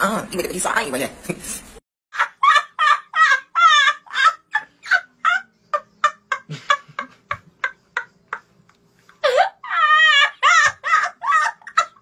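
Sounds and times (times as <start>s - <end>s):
boy laughing hysterically: 2.1s - 8.5s, 9.2s - 12.0s.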